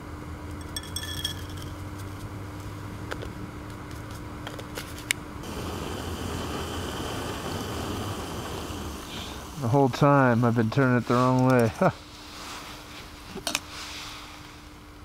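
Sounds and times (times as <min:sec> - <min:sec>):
camping stove burner hissing: 0:05.4 - 0:14.7.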